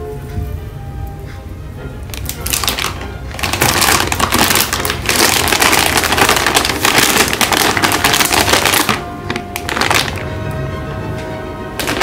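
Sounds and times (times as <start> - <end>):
plastic snack bags crinkling: 2.1 - 10.4, 11.8 - 12.0.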